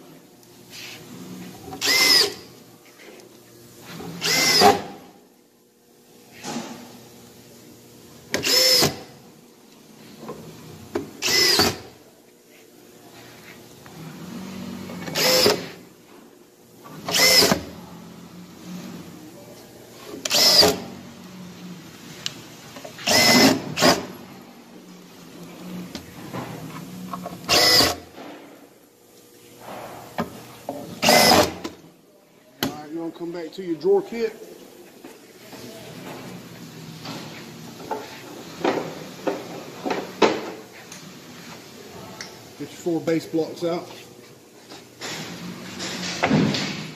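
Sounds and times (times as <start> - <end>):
cordless drill driving screws: 1.8 - 2.4, 4.2 - 4.9, 8.3 - 9.1, 11.2 - 11.9, 15.0 - 15.7, 17.1 - 17.7, 20.2 - 20.8, 23.0 - 24.1, 27.5 - 28.0, 31.0 - 31.6.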